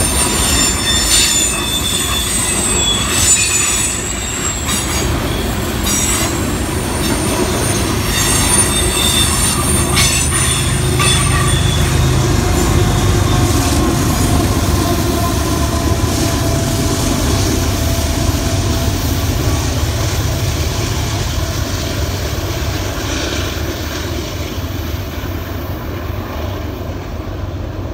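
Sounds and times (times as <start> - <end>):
wheel squeal: 0.0 - 19.5
locomotive engines droning: 0.0 - 27.9.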